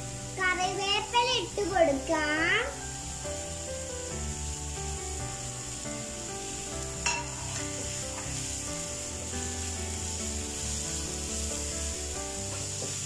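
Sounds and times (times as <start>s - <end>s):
vegetables sizzling in oil: 0.0s - 13.0s
spatula stirring in pan: 4.0s - 13.0s.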